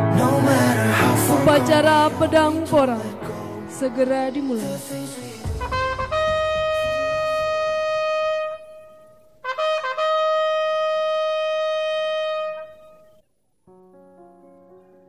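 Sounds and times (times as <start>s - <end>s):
trumpet call: 5.5s - 13.2s.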